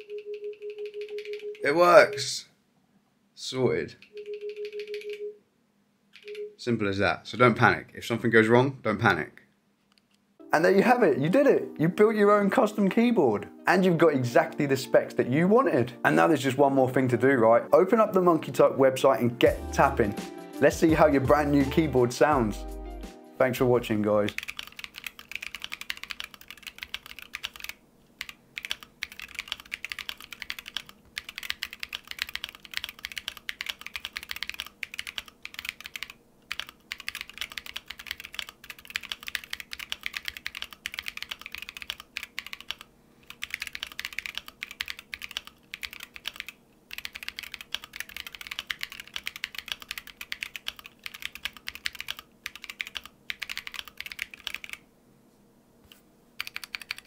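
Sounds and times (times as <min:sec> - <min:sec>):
mechanical keyboard typing: 0:00.0 - 0:01.6, 0:04.0 - 0:05.2, 0:06.2 - 0:06.4, 0:24.1 - 0:54.8, 0:56.4 - 0:57.0.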